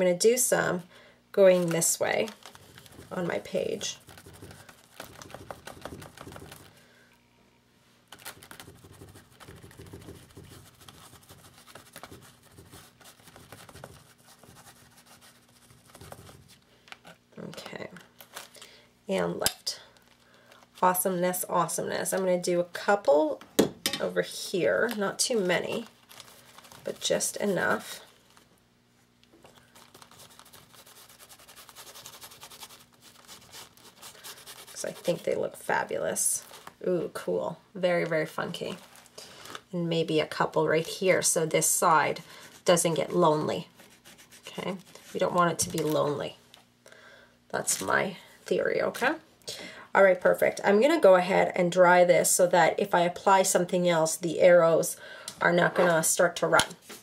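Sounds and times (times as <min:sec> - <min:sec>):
foam brush tapping on paper: 0:08.6 - 0:14.6.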